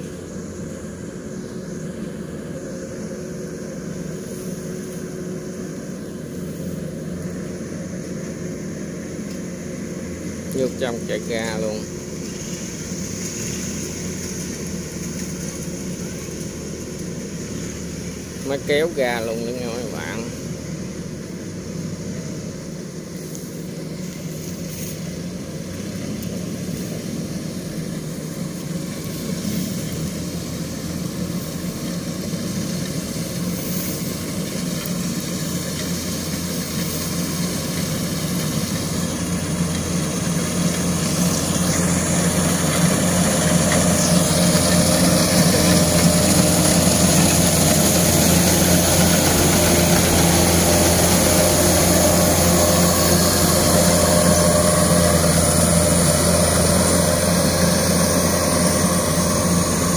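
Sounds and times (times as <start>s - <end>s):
combine harvester engine hum: 0.0s - 59.9s.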